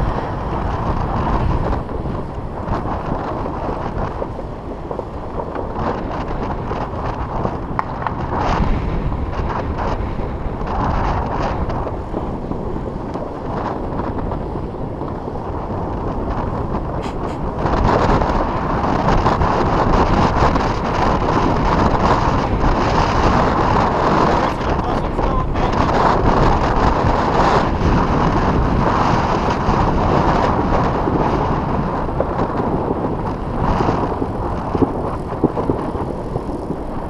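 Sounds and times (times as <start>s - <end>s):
wind rushing over microphone: 0.0s - 37.0s.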